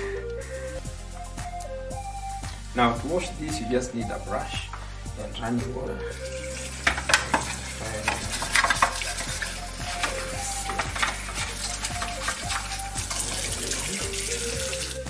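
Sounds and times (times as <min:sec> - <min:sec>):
toothbrush scrubbing: 0:06.2 - 0:15.0
tap water splashing on plastic: 0:06.8 - 0:15.0.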